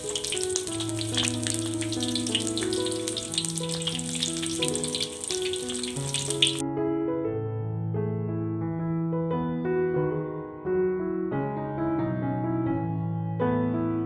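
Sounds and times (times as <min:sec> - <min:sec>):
oil sizzling in a wok: 0:00.0 - 0:06.6
soft piano music: 0:00.0 - 0:14.0.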